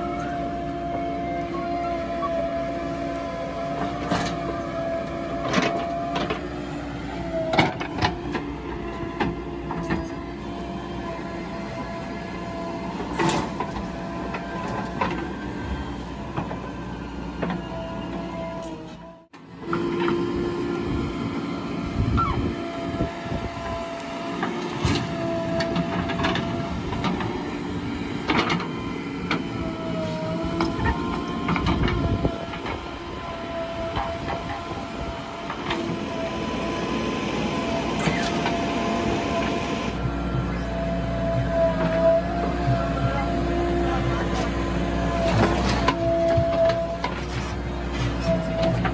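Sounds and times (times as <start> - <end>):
diesel engine running: 0.0 - 48.9.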